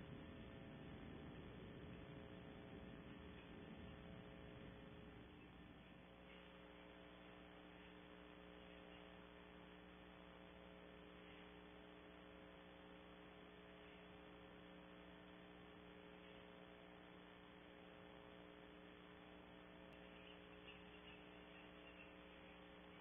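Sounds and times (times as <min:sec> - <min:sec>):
faint electrical hum: 0:00.0 - 0:23.0.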